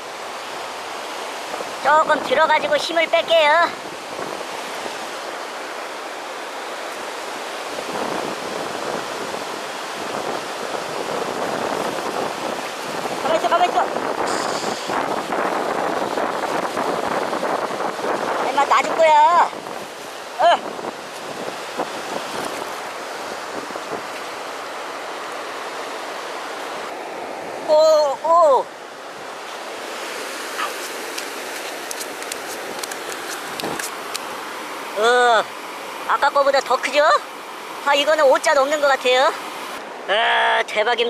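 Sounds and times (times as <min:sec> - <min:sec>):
water splashing and sloshing: 0:00.0 - 0:40.0
wind on microphone: 0:01.4 - 0:05.9, 0:07.1 - 0:24.8, 0:26.7 - 0:34.3.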